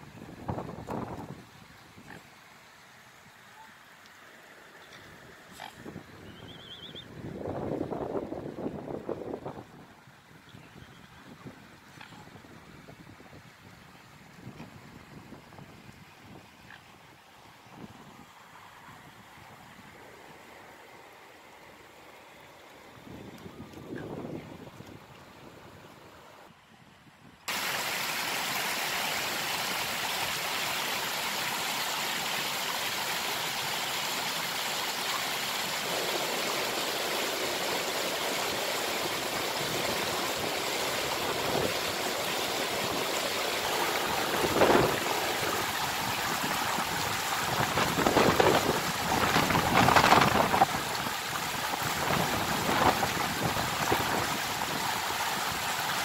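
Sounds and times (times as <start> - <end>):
water rushing over rocks: 27.5 - 56.0.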